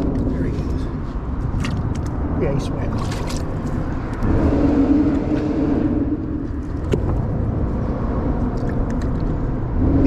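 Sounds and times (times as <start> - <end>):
road traffic rumble: 0.0 - 10.0
vehicle passing: 0.0 - 10.0.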